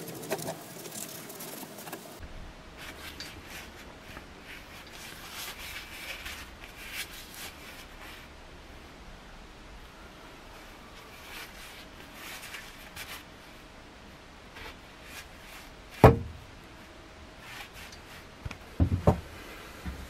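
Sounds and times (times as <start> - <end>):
hammer knocking on wood and metal: 16.0 - 16.4, 18.8 - 19.2.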